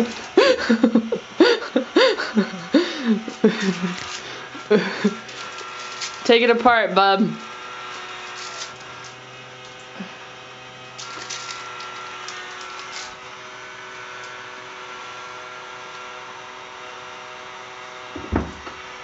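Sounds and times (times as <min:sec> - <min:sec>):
small electric motor humming: 0:00.0 - 0:19.0
crinkly foil rustles: 0:03.2 - 0:06.7, 0:07.3 - 0:09.8, 0:11.0 - 0:13.2.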